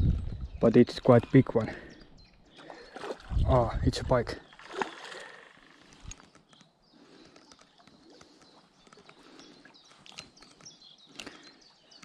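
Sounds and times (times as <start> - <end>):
faint songbirds chirping: 0.0 - 12.0
sharp clicks: 5.7 - 9.2.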